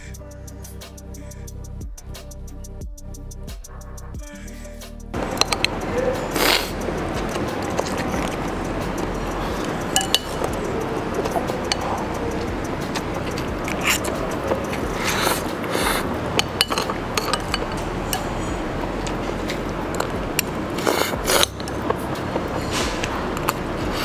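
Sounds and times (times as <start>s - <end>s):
utensils clicking on porcelain bowl: 5.2s - 24.0s
person slurping noodles: 5.3s - 10.5s, 12.9s - 21.6s.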